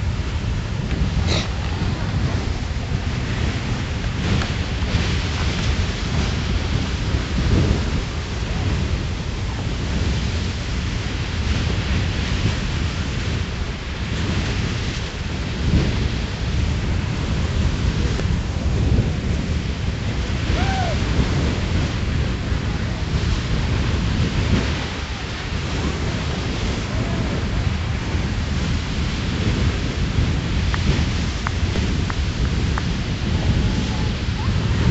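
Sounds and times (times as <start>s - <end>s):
geyser rushing water and steam: 0.0s - 34.9s.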